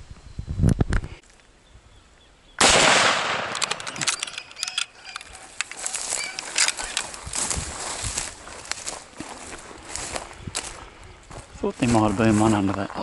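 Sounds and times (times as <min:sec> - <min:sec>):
rifle shot: 0:02.6 - 0:04.1
clicks and rustling: 0:03.3 - 0:07.4.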